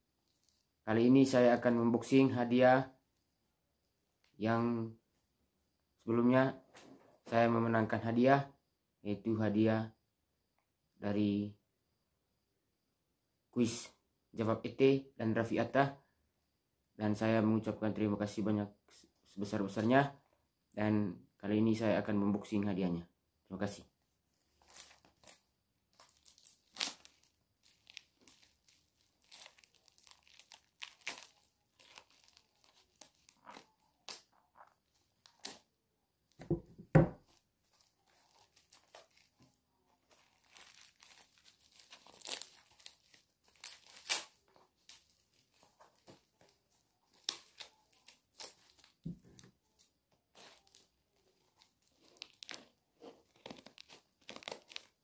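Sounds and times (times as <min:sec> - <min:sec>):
packaging tearing and crumpling: 0:24.5 - 0:35.6, 0:37.3 - 0:49.1, 0:50.4 - 0:55.0.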